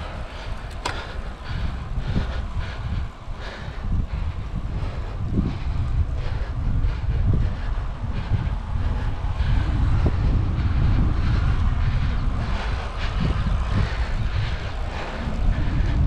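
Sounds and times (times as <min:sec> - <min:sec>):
bike rumbling: 0:00.0 - 0:16.0
wind buffeting microphone: 0:00.0 - 0:16.0.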